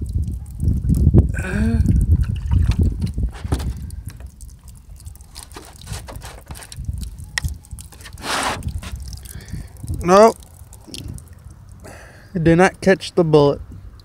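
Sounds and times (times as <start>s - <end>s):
water trickling and dripping: 0.0s - 13.0s, 13.6s - 14.0s
low rumble with knocks: 2.0s - 4.5s.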